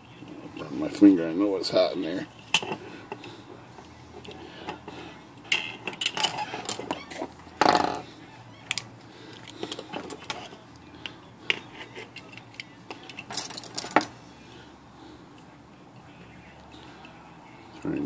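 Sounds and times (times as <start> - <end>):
tools knocked on workbench: 7.6 - 8.0.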